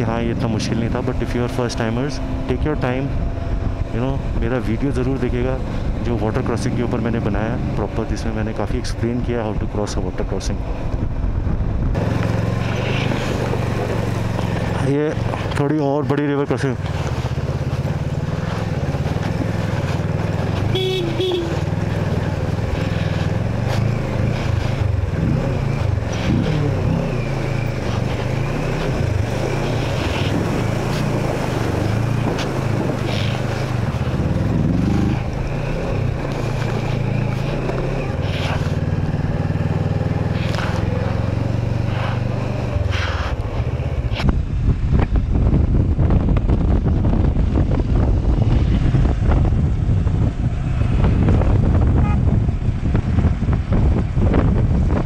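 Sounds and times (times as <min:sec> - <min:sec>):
motorcycle engine revving: 0:00.0 - 0:45.0
wind on microphone: 0:10.6 - 0:14.0, 0:41.8 - 0:55.0.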